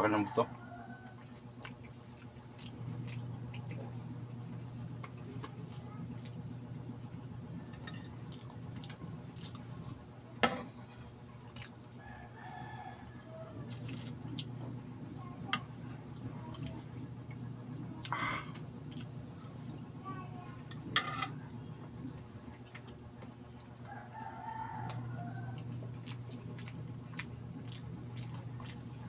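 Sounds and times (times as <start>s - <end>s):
rooster crowing: 0.0s - 1.3s, 12.0s - 13.8s, 23.8s - 25.7s
chewing and lip smacking: 1.0s - 6.4s, 8.2s - 10.0s, 11.5s - 12.0s, 13.0s - 15.3s, 24.7s - 29.0s.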